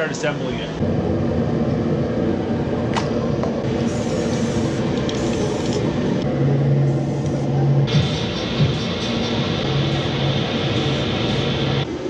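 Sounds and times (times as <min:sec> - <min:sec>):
steady mechanical hum: 0:00.0 - 0:12.0
spray paint can hissing: 0:03.8 - 0:05.9.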